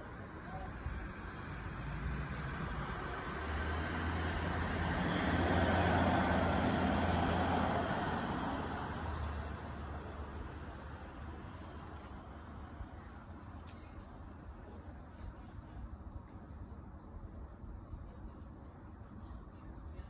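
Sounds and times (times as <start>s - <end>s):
vehicle engine passing: 1.3s - 10.7s.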